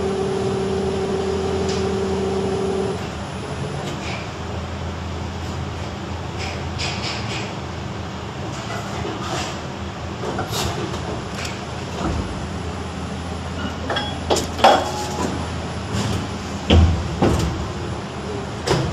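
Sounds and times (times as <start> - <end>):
machine drone: 0.0 - 7.2, 10.9 - 18.8.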